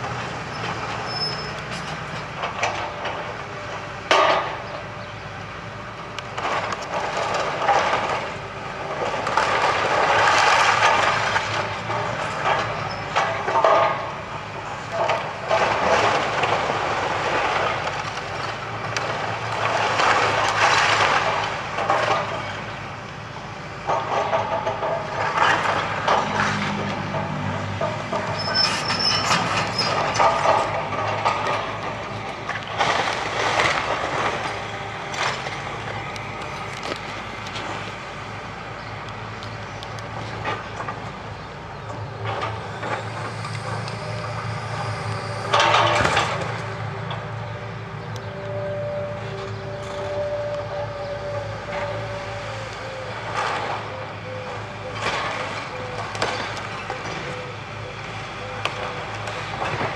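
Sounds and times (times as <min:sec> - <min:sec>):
excavator diesel engine running: 0:00.0 - 0:59.9
high squeal: 0:00.5 - 0:01.6, 0:28.2 - 0:30.2, 0:42.8 - 0:54.6.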